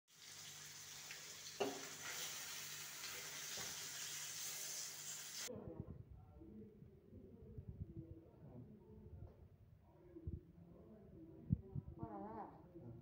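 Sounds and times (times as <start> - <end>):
fish sizzling in oil: 0.1 - 5.5.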